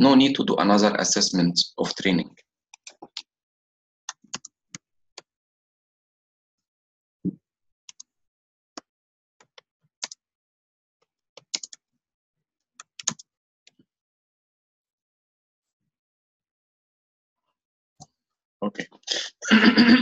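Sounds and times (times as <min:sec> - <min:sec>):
keyboard keystrokes clicking: 0:11.4 - 0:11.8.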